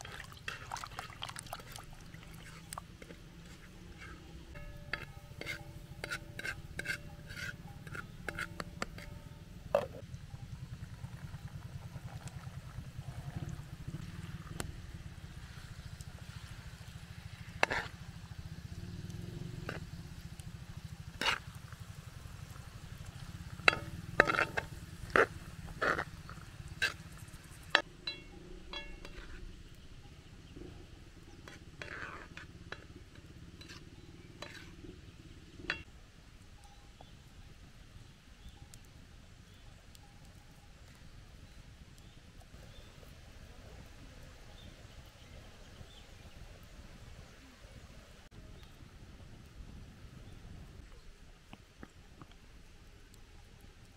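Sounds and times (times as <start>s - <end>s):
cookware and utensils clinking: 27.8s - 29.5s.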